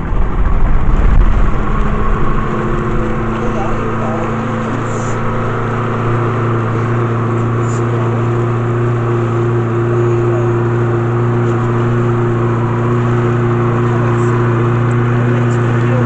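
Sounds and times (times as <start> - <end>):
boat engine humming: 0.0 - 16.0.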